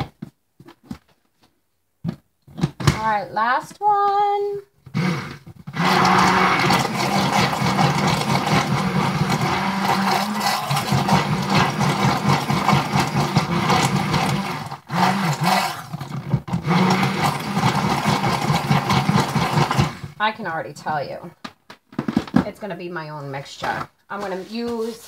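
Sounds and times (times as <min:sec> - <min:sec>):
stick blender whirring: 0:04.8 - 0:20.2.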